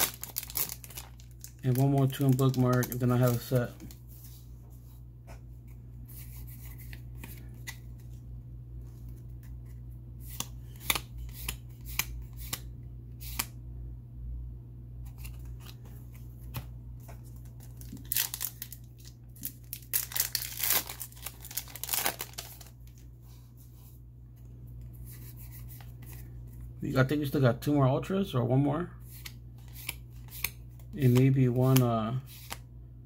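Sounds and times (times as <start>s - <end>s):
foil pack crinkling and tearing: 0.0s - 4.0s, 17.6s - 23.0s.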